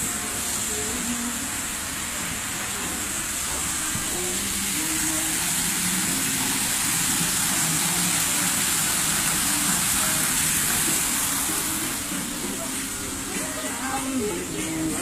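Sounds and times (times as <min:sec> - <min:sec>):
water rushing into a pond: 0:03.4 - 0:13.1.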